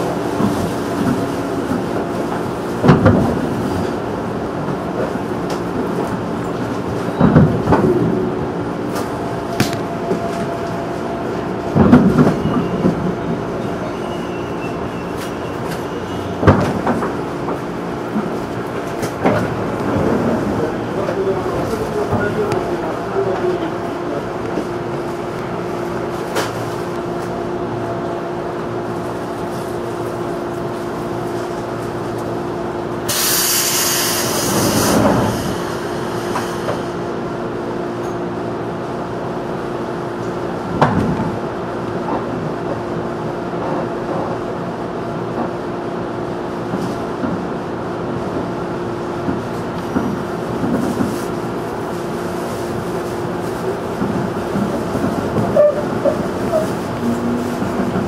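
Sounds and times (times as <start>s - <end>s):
electric train running hum: 0.0s - 58.0s
air hissing: 33.1s - 37.0s.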